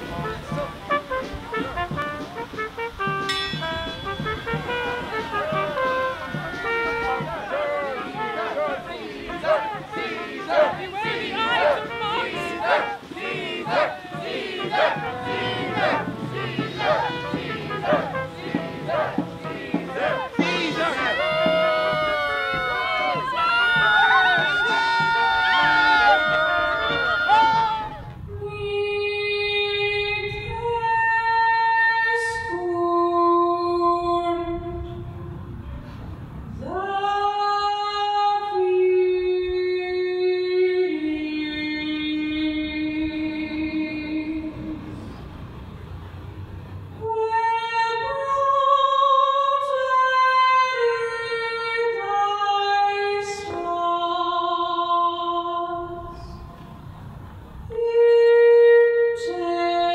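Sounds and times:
woman singing slow melody: 0:57.7 - 0:59.9.

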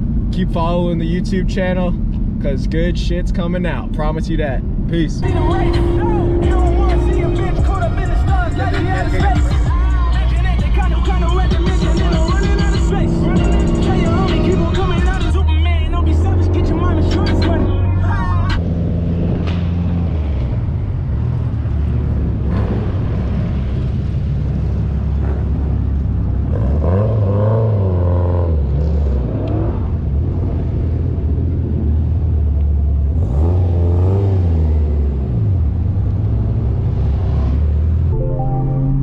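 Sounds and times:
car engines idling: 0:00.0 - 0:27.0
engine revving: 0:05.2 - 0:38.1.

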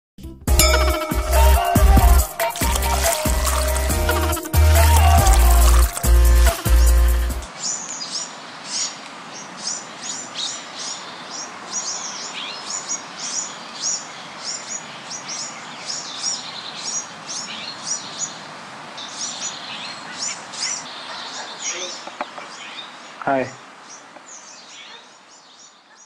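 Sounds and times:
small birds chirping: 0:02.3 - 0:26.0
steady background hiss: 0:06.0 - 0:25.9.

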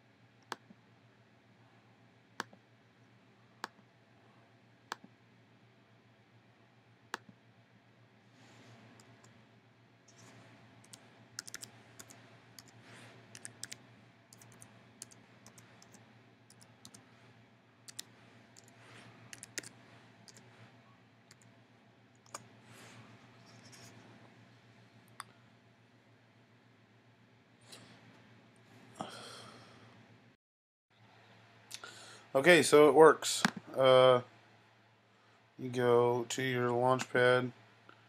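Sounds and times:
low steady hum: 0:00.0 - 0:30.4, 0:31.0 - 0:38.0
laptop keyboard clicks: 0:10.9 - 0:12.7, 0:13.4 - 0:13.8.

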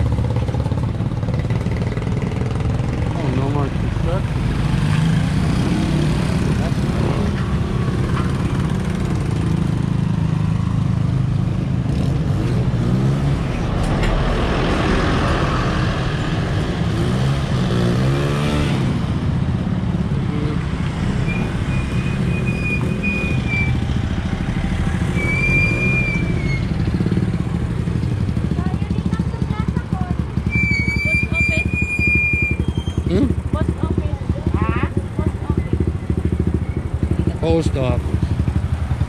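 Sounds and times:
short high-pitched squeals: 0:21.2 - 0:23.8, 0:25.1 - 0:26.9, 0:30.4 - 0:33.1.

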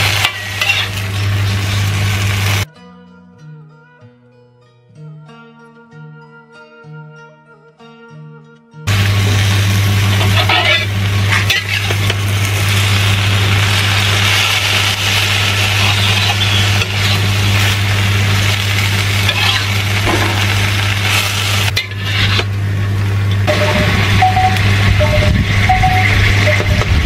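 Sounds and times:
metal spatula scraping wok: 0:00.0 - 0:01.9, 0:10.1 - 0:22.5
greens sizzling in a wok: 0:00.0 - 0:02.7, 0:08.9 - 0:27.0
low hum: 0:00.0 - 0:02.7, 0:08.9 - 0:27.0.

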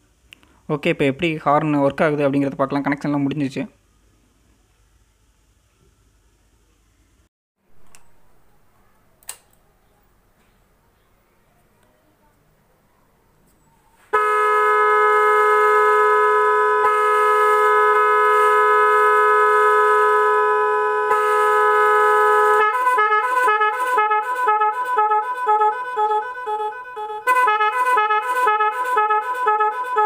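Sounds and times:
two-tone air horn chord: 0:14.1 - 0:30.0
warbling air horns: 0:14.1 - 0:30.0.

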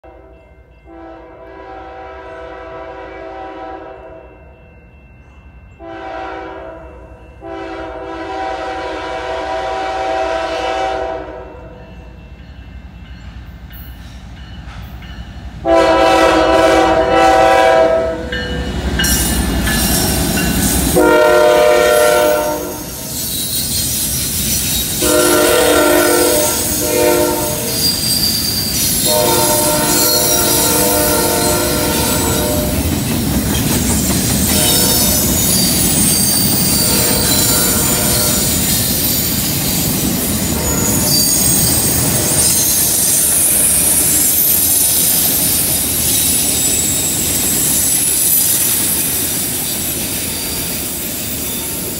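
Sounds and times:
locomotive horn blasts: 0:00.0 - 0:04.3, 0:05.8 - 0:11.8, 0:15.6 - 0:18.5, 0:21.0 - 0:23.1, 0:25.0 - 0:27.9, 0:29.0 - 0:32.9, 0:34.5 - 0:35.4, 0:36.7 - 0:38.6, 0:40.6 - 0:41.3
rumble of locomotive engines: 0:00.0 - 0:51.9
train wheel squeal: 0:18.3 - 0:21.1, 0:21.9 - 0:51.9.

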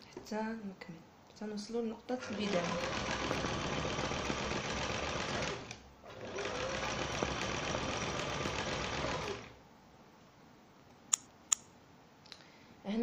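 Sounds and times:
sewing machine stitching: 0:02.2 - 0:09.6.

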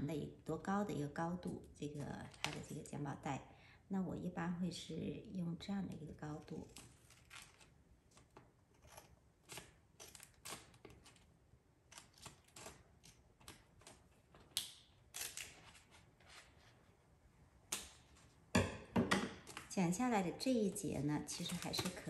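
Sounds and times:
scissors snipping paper: 0:06.5 - 0:11.3, 0:11.9 - 0:15.9, 0:20.6 - 0:22.0.

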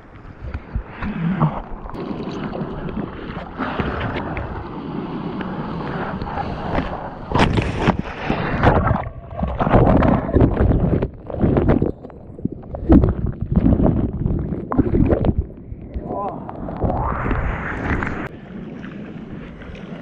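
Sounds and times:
seawater sloshing and splashing: 0:01.7 - 0:15.9.

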